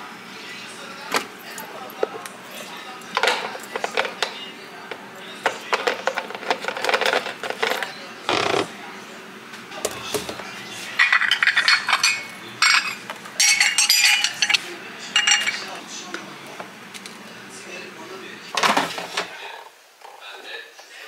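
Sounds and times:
ceramic plates clinking: 1.5s - 8.7s, 9.8s - 15.8s.

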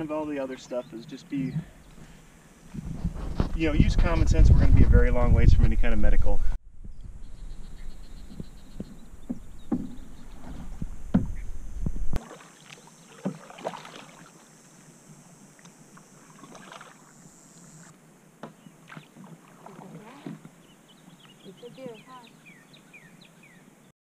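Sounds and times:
paddles splashing in water: 12.2s - 21.9s.

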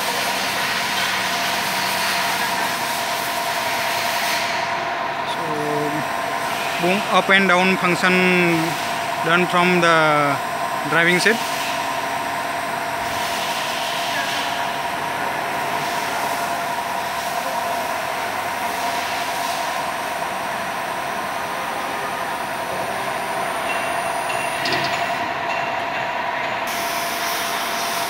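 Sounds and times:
mechanical drone with high whine: 0.0s - 28.0s.

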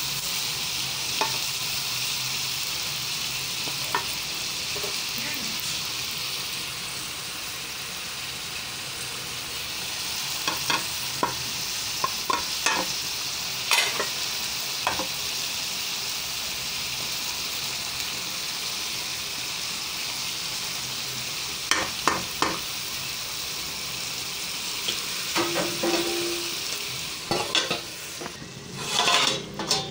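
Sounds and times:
vegetables sizzling in a pan: 0.0s - 29.9s
wooden spoon scraping a pan: 27.3s - 29.9s.

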